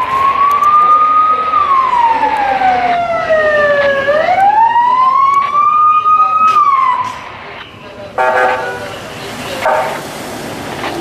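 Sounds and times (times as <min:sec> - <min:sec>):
siren wailing: 0:00.0 - 0:07.1.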